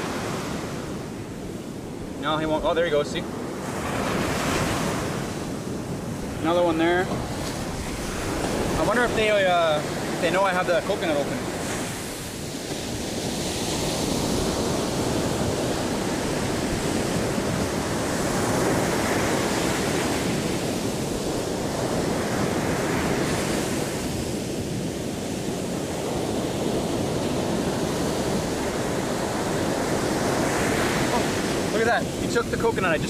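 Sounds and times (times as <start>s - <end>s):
surf breaking on shore: 0.0s - 33.0s
wind on microphone: 0.0s - 33.0s.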